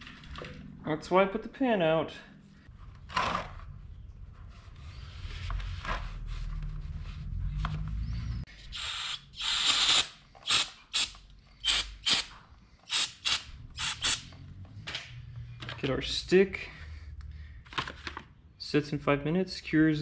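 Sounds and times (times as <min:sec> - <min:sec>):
aerosol spray can hissing: 0:08.8 - 0:11.1.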